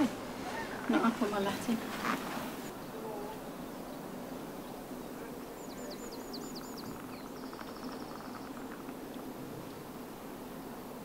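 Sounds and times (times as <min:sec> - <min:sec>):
outdoor background noise: 0:00.0 - 0:11.0
small bird singing: 0:02.2 - 0:09.8.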